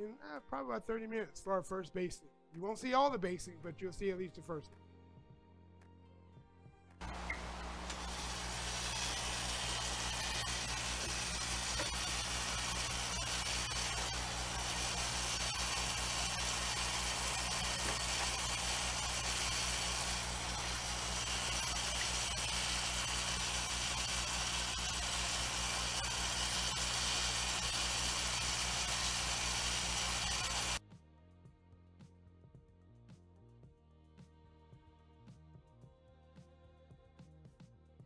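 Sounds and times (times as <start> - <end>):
oven humming and hissing: 7.0 - 30.8.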